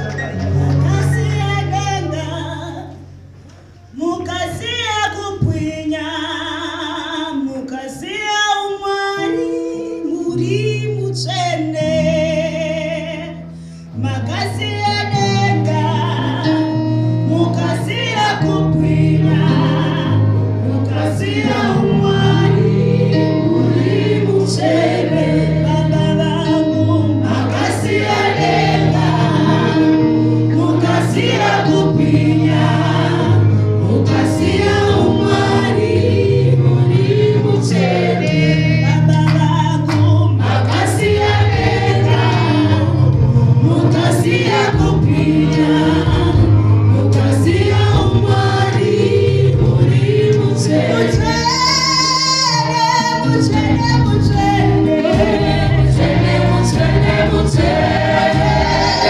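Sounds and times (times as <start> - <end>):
woman singing into microphone: 0.4 - 3.1, 3.9 - 56.0, 56.6 - 59.0
group singing gospel: 14.3 - 59.0
backing music with steady beat: 53.4 - 59.0.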